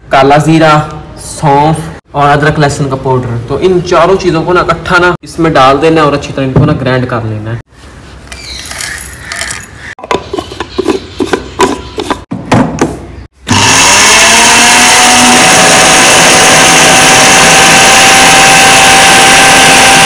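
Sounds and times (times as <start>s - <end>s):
grinder motor whining: 13.5s - 20.0s.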